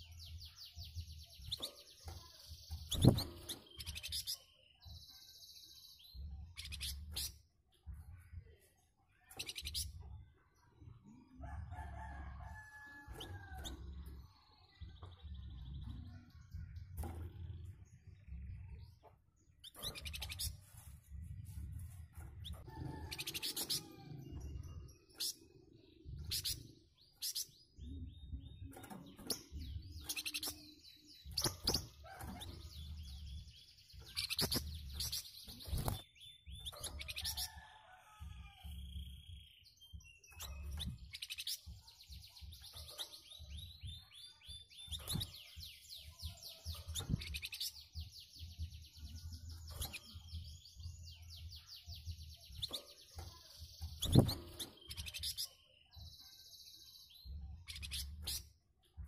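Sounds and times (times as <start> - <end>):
songbird chattering song: 0.0 - 10.0.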